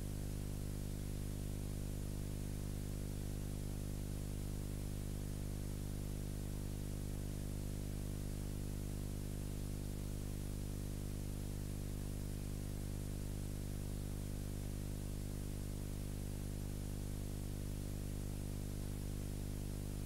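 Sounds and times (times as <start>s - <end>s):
electrical hum with buzz: 0.0s - 20.0s.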